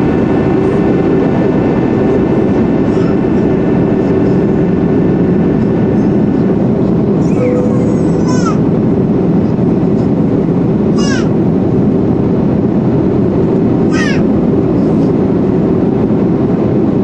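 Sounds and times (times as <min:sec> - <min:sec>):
aircraft cabin engine noise: 0:00.0 - 0:17.0.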